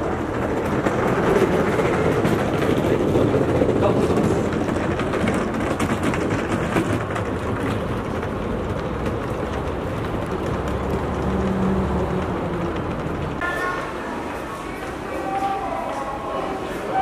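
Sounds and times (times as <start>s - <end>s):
rumble of passing vehicles: 0.0s - 13.4s.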